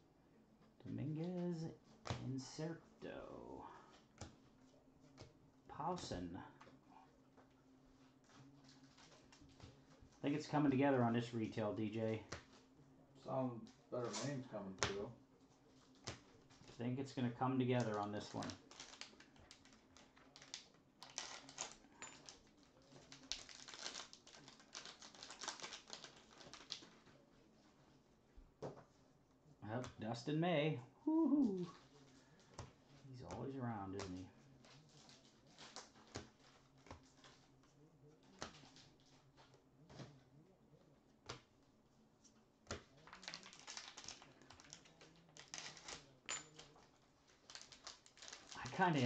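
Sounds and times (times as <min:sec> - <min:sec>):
wrapper crinkling as torn open: 0:17.9 - 0:27.0, 0:43.0 - 0:49.0.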